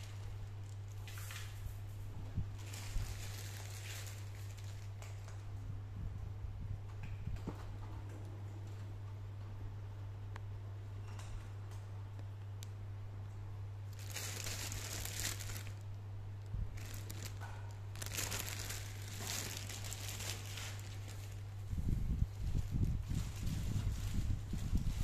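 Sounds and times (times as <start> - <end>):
plastic bag crinkling: 2.6 - 5.4, 13.9 - 25.0.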